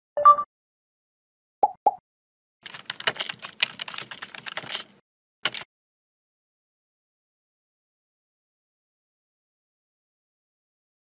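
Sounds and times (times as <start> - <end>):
computer keyboard typing: 2.6 - 5.7.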